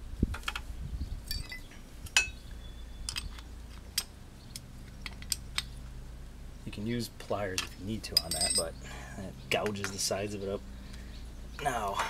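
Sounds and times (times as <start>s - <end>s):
light metallic clinks: 1.3s - 2.4s, 8.1s - 8.9s.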